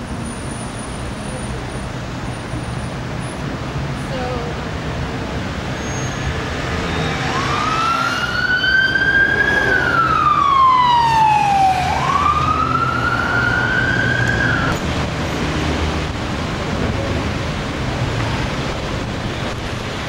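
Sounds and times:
street traffic: 0.0 - 20.0
emergency siren wailing: 6.9 - 14.9.

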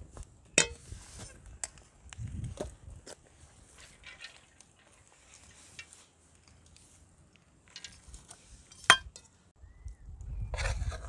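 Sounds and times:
metal skimmer scraping and clinking: 3.7 - 6.0.

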